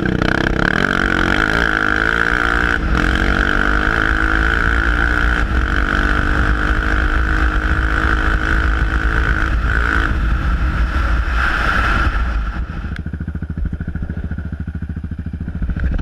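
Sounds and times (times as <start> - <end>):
quad engine running hard: 0.0 - 16.0.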